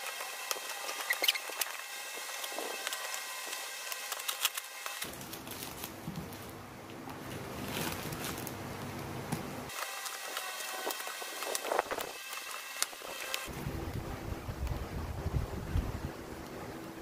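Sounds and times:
plastic wrapping crackling: 0.0s - 9.0s, 9.7s - 13.5s.

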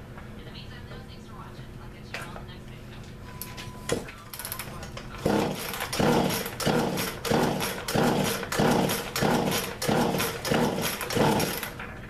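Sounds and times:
chainsaw starter cord yanks: 5.2s - 11.8s
engine turning over whirr: 5.2s - 11.8s.

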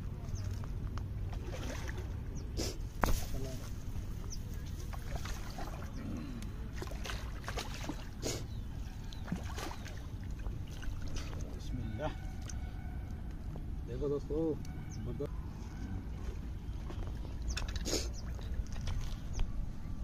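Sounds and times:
fish thrashing and splashing: 4.8s - 6.0s, 6.7s - 8.2s, 9.1s - 11.5s.

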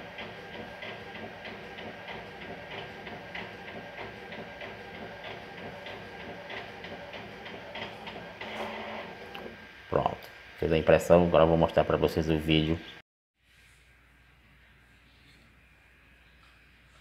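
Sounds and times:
inkjet printer printing: 0.0s - 9.7s.

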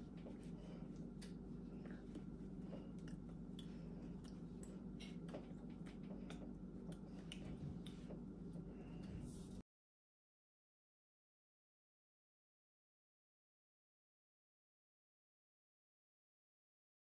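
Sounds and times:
faint room hum: 0.0s - 9.6s.

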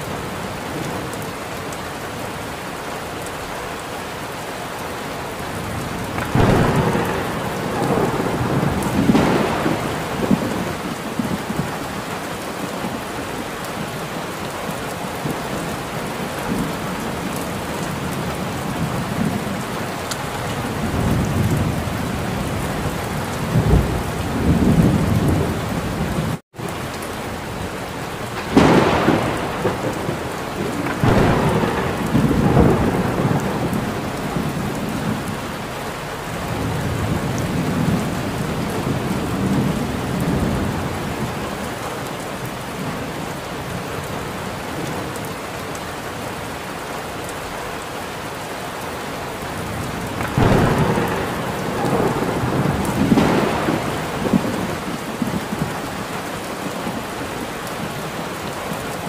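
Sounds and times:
heavy rain: 0.0s - 59.0s
rolling thunder: 5.6s - 12.1s, 27.7s - 41.4s, 49.6s - 56.1s
sharp thunderclap: 6.1s - 11.8s, 28.3s - 35.7s, 50.1s - 55.8s.

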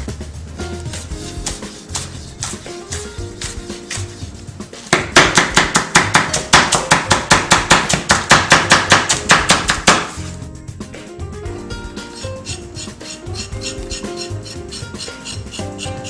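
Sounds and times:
soft background music: 0.0s - 16.0s
knife chopping on wooden board: 0.9s - 10.3s.

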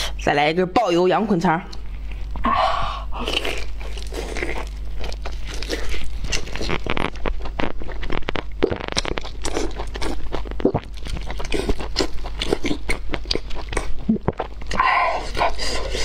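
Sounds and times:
person chewing with wet clicks: 3.3s - 16.0s.

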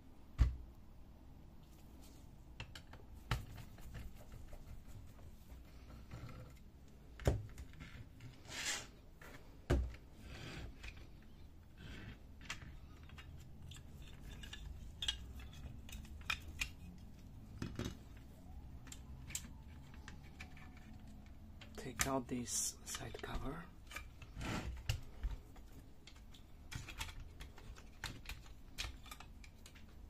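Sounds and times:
plastic and metal parts clicking: 10.6s - 22.2s, 22.8s - 30.0s.

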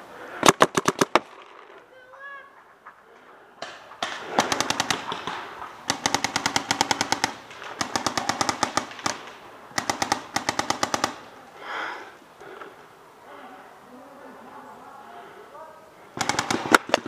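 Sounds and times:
paintball markers firing: 0.4s - 1.8s, 3.6s - 11.4s, 16.2s - 17.0s.

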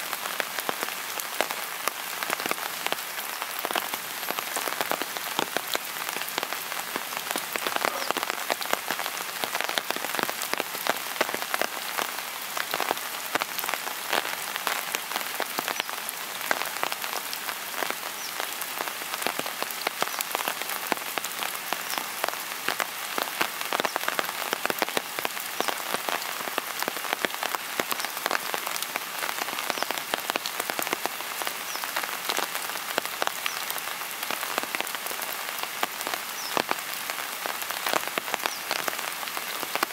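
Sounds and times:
rain falling: 0.0s - 39.9s.

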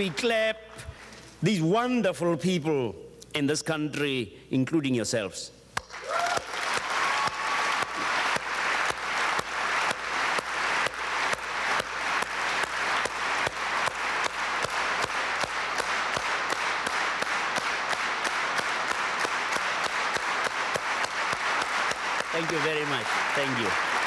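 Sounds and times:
audience rhythmic clapping: 0.0s - 0.3s, 5.8s - 24.0s.

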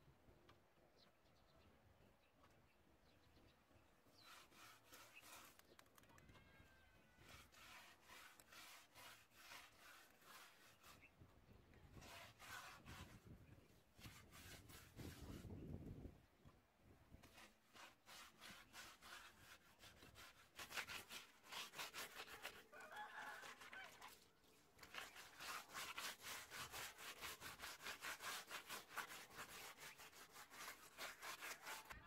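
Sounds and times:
hand rubbing rough wall: 4.2s - 5.9s, 7.2s - 11.1s, 11.9s - 13.4s, 14.0s - 15.6s, 17.2s - 22.8s, 24.8s - 32.0s.

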